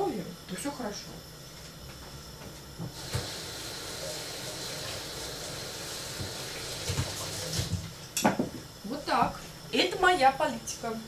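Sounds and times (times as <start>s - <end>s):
tap turned on with a knock: 2.8s - 3.3s, 6.2s - 8.6s
water running into sink: 2.9s - 7.9s.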